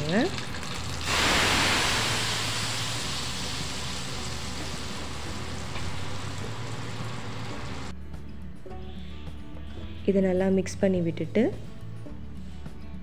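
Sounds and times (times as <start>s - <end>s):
hot oil sizzling in a pan: 0.0s - 7.9s.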